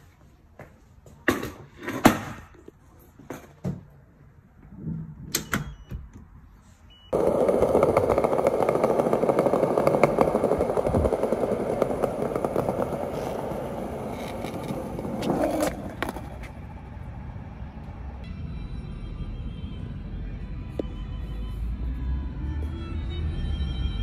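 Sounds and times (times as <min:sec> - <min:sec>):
skateboard wheels rolling on paving: 0:07.1 - 0:18.2.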